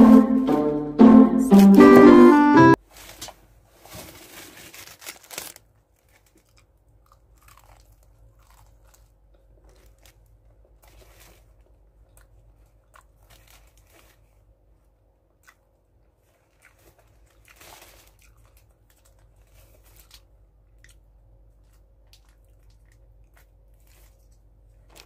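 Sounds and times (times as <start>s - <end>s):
fried chicken crunching: 4.1s - 14.5s, 15.3s - 25.0s.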